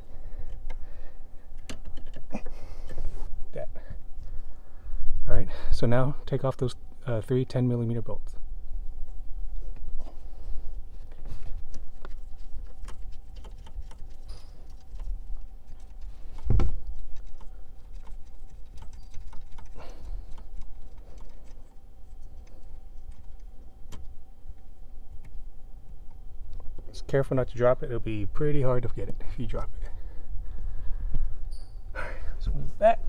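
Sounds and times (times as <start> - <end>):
socket tool clicks and scratches: 11.7 - 24.1.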